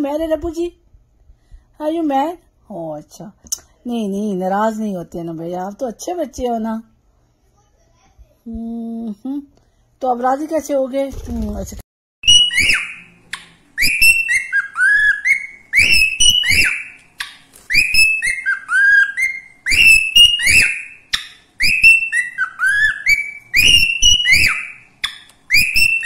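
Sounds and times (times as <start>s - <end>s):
cockatiel whistling a tune: 12.2s - 13.2s, 13.8s - 26.0s.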